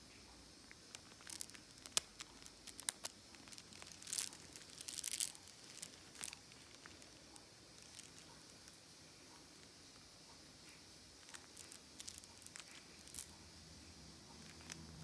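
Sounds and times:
bird beak clicking on beads: 0:01.0 - 0:08.8, 0:11.2 - 0:13.3.

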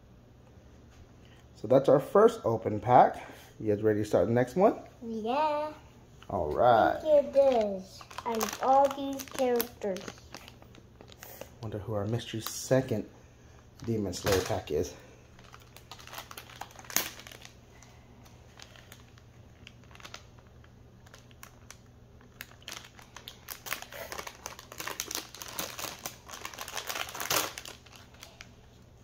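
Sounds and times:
wrapper crinkling and rustling: 0:07.0 - 0:13.0, 0:13.6 - 0:28.8.

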